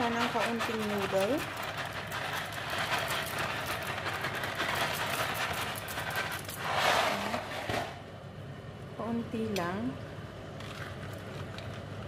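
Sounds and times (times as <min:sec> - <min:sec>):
dry pasta pouring into pot: 0:00.0 - 0:07.4.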